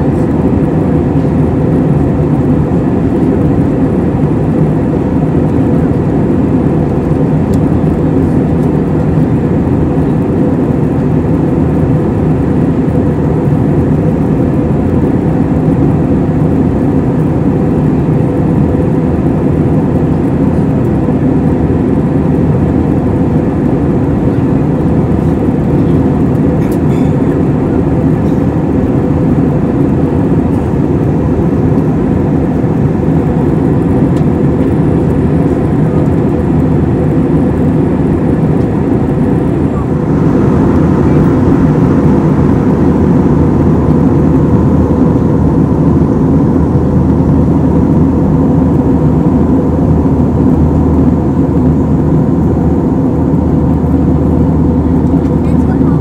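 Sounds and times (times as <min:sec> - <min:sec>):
aircraft engine rumble: 0:00.0 - 0:56.0
faint steady hum: 0:00.0 - 0:56.0
rushing airflow: 0:00.0 - 0:56.0.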